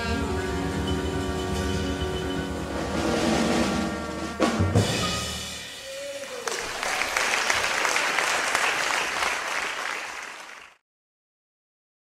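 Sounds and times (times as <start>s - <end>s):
audience applauding: 5.9s - 10.8s.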